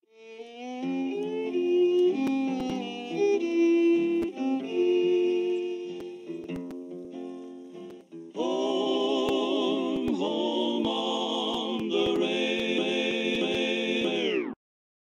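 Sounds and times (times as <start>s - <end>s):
faint clicks: 2.0s - 3.3s, 4.1s - 4.6s.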